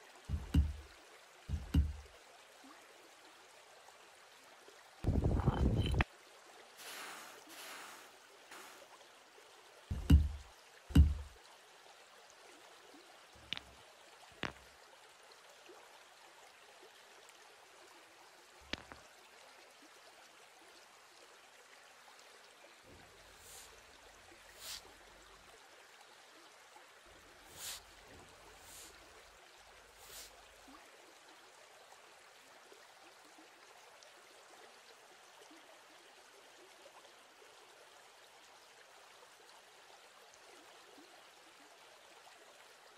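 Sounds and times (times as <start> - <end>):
faint steady hiss: 0.0 - 32.1
heavy rock thuds: 0.3 - 0.8, 1.5 - 2.0, 9.9 - 11.4
stone knocking on stone: 0.3 - 0.8, 1.5 - 2.0, 5.3 - 6.0, 9.9 - 11.3.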